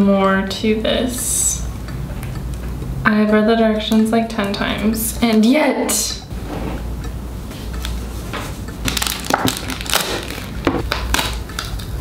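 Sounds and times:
packaging rustling and crinkling: 8.8s - 11.9s.

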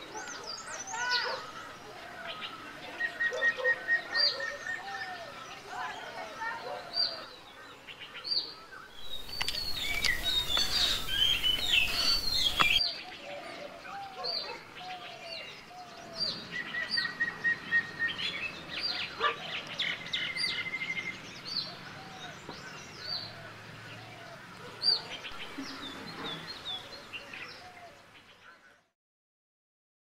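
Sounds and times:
songbirds calling: 0.0s - 28.9s
background hiss: 7.3s - 12.8s
bird trill: 9.0s - 12.8s.

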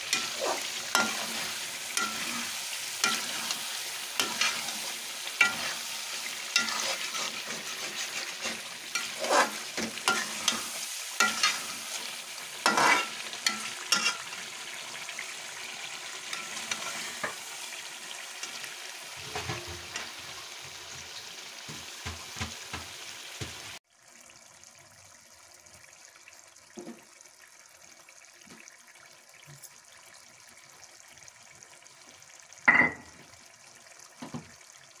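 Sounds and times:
curry sizzling in a pot: 0.0s - 35.0s
metal ladle scraping a pot: 0.1s - 14.5s, 16.3s - 17.4s.

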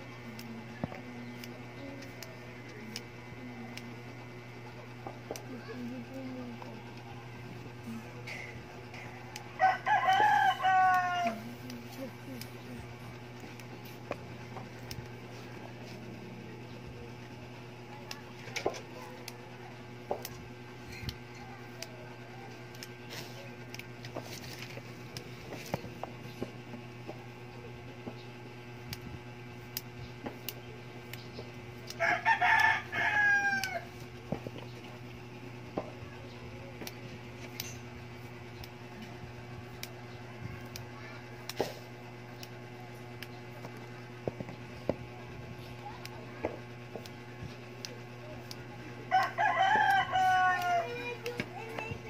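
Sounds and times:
steady low hum: 0.0s - 52.0s
rooster crowing: 9.6s - 11.5s, 32.0s - 33.9s, 49.1s - 51.0s.

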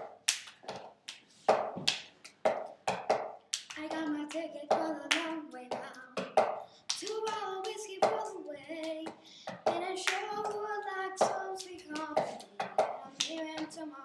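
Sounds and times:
hand claps and taps: 0.0s - 10.6s, 11.2s - 13.8s
child singing: 3.8s - 14.0s.

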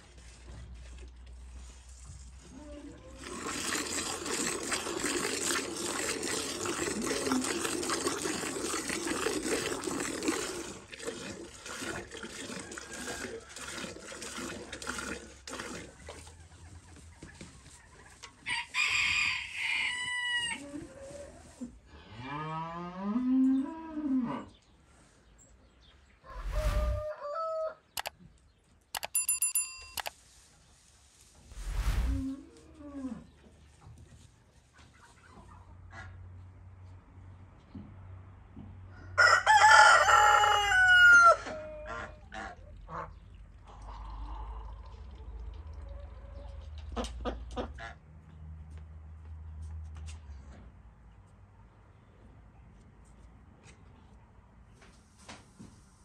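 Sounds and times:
milk streams hissing into bucket: 3.2s - 16.1s
rooster crowing: 26.3s - 27.8s, 39.2s - 41.6s.

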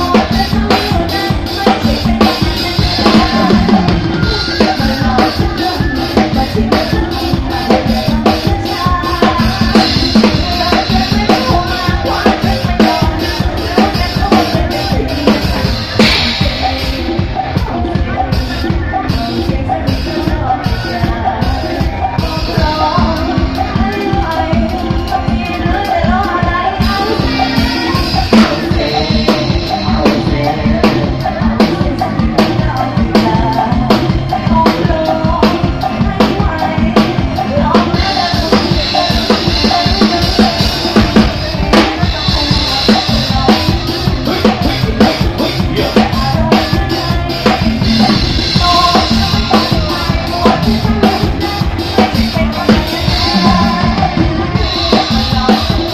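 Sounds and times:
drum kit fast beat: 0.0s - 55.9s
live band music: 0.0s - 55.9s.

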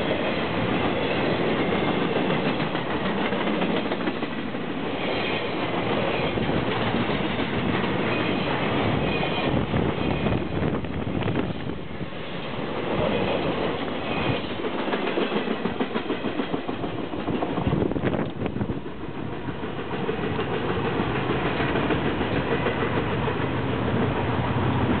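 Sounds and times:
train wheels clattering over rails: 0.0s - 25.0s.

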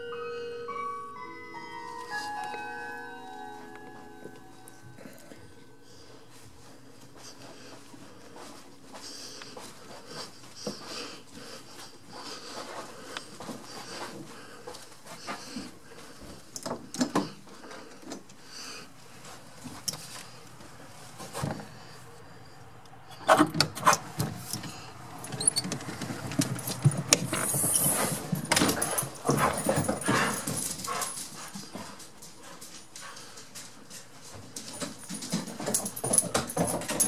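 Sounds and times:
dog noises: 27.4s - 33.3s.

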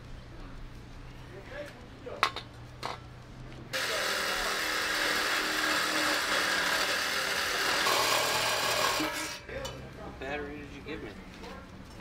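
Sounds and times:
reciprocating saw cutting metal: 3.7s - 9.6s.

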